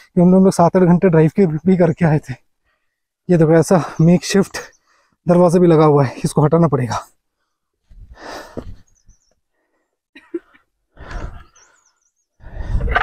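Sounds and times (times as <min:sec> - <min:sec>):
person panting heavily: 0:08.0 - 0:08.8, 0:10.9 - 0:13.0.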